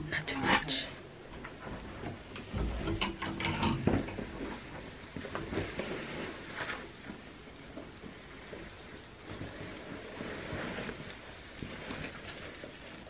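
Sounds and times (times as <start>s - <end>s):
small clicks and knocks: 1.3s - 9.8s
garment rustling: 3.5s - 13.0s.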